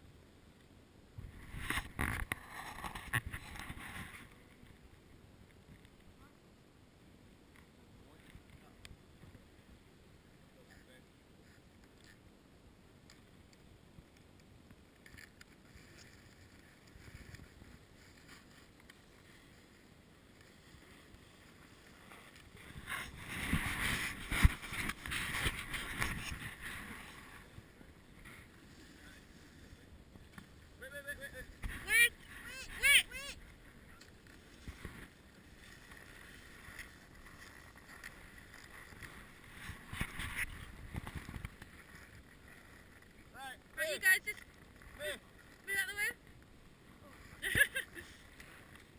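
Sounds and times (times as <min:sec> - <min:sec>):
faint wind hiss: 0:00.0 - 0:48.9
snowboards sliding on snow: 0:15.6 - 0:43.9, 0:46.6 - 0:48.9
muffled wind on microphone: 0:20.6 - 0:43.0.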